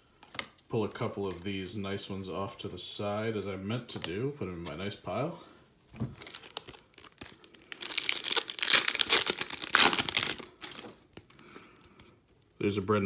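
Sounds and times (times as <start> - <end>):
wrapper crinkling and tearing: 6.2 - 11.2
cards clicking and rustling: 6.2 - 12.5.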